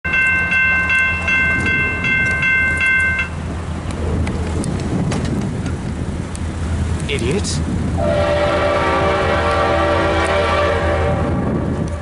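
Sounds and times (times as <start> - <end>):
crossing bell ringing rapidly: 0.1 - 3.4
steady low rumble: 0.2 - 12.0.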